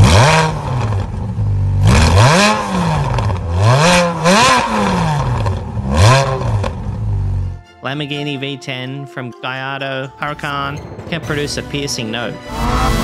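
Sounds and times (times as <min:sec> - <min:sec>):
sports car engine revving: 0:00.0 - 0:07.6.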